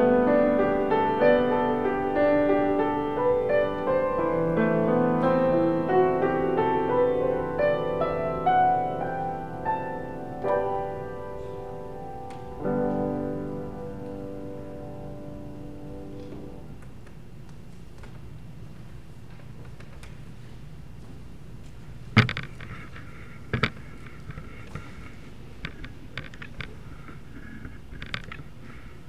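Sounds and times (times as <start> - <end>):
grand piano playing gently: 0.0 - 17.0.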